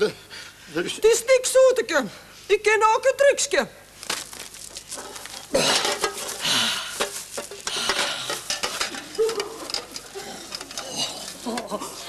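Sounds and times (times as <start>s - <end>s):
newspaper rustling: 4.0s - 7.9s.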